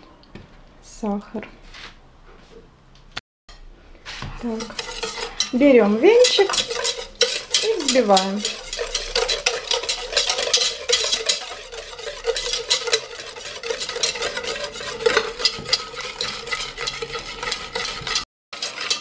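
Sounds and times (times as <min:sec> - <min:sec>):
whisk scraping metal bowl: 0:04.2 - 0:19.0.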